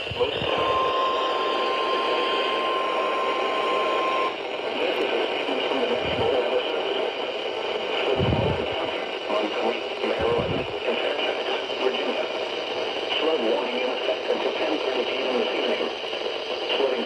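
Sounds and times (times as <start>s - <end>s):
steady alarm tone: 0.0s - 4.7s
radio static hiss: 0.0s - 17.0s.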